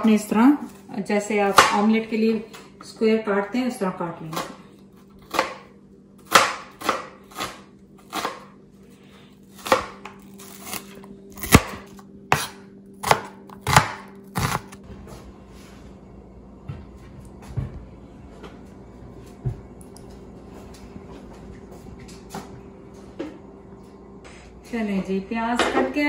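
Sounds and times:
knife chopping on plastic board: 1.5s - 1.8s, 5.3s - 5.6s, 6.3s - 8.5s, 11.4s - 14.8s.

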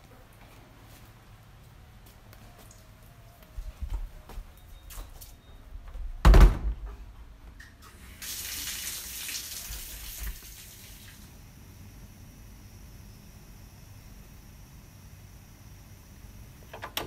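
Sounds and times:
heavy thump: 6.2s - 7.0s.

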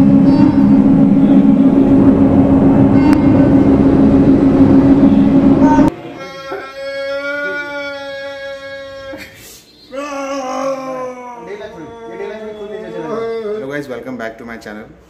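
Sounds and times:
held musical note: 0.0s - 5.9s
loud rumbling with low hum: 0.0s - 5.9s.

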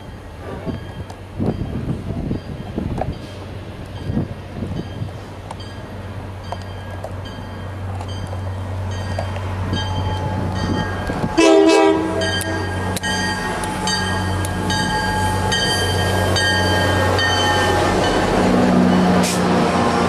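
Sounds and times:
locomotive engine droning: 0.0s - 20.0s
short horn blast: 11.4s - 12.6s
bell pinging: 12.2s - 18.2s.

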